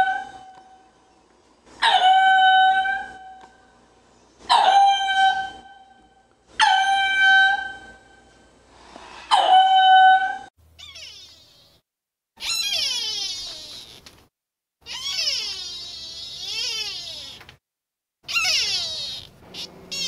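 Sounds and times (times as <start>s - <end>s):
lemur calling: 18.2s - 20.0s.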